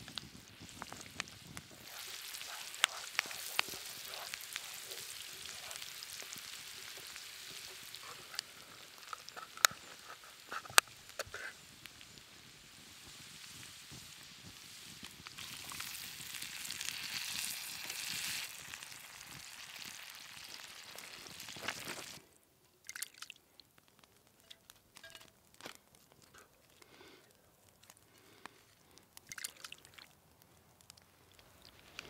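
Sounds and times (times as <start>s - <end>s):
frying pan sizzling: 0.0s - 22.2s
sauce pouring with clicks: 22.8s - 23.7s, 27.8s - 30.2s.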